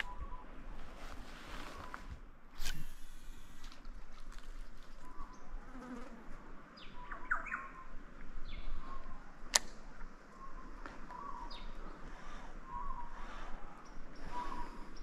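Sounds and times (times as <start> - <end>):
birds chirping: 6.8 - 9.4
sharp click: 9.5 - 10.1.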